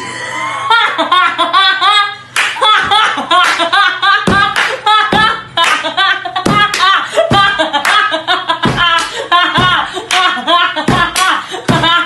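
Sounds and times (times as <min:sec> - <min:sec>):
sharp claps in beat: 0:02.3 - 0:11.9
person singing over a beat: 0:02.6 - 0:12.0.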